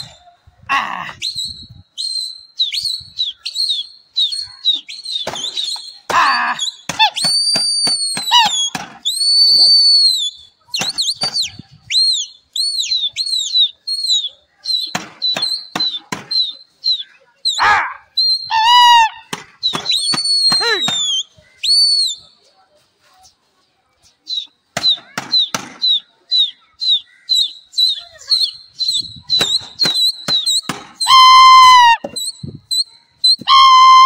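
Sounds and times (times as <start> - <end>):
person whistling loudly: 1.2 - 14.3, 15.2 - 22.2, 27.4 - 34.0
high wavering call: 29.4 - 34.0.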